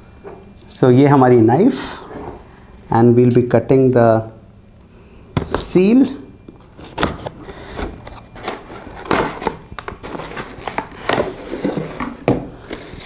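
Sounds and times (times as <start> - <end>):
cardboard box being unpacked: 6.8 - 13.0.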